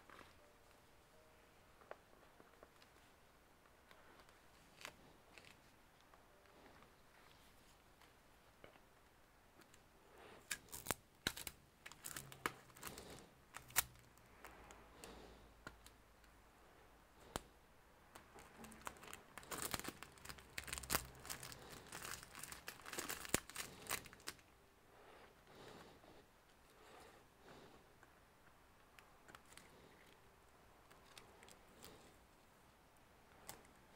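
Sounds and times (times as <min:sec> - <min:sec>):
plastic wrapping crinkling: 0:10.4 - 0:14.1, 0:18.2 - 0:24.4.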